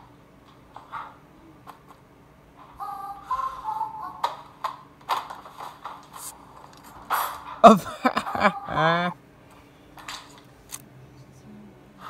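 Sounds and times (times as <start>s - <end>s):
man vocalising without words: 7.6s - 9.2s.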